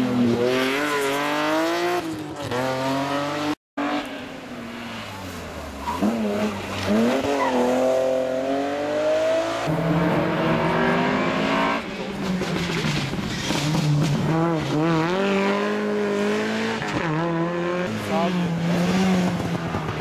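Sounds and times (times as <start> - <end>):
rally car engines accelerating: 0.0 - 20.0.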